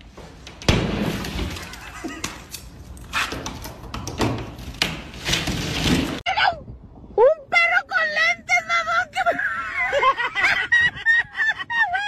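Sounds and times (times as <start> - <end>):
drywall being smashed: 0.6 - 2.4, 4.0 - 6.2.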